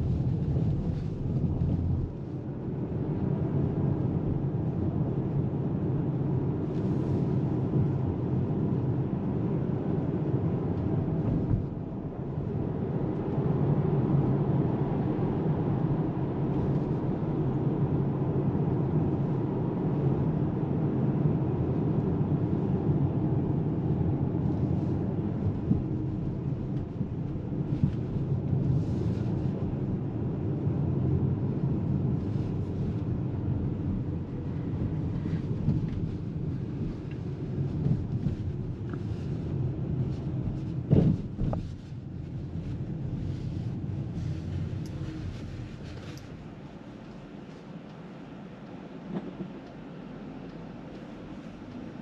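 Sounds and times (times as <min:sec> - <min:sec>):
road and tyre noise in car: 0:00.0 - 0:52.0.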